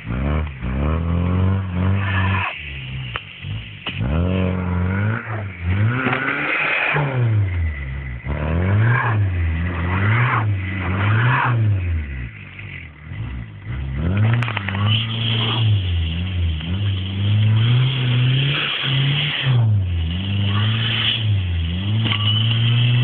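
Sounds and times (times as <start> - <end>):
car engine revving: 0.0 - 23.0.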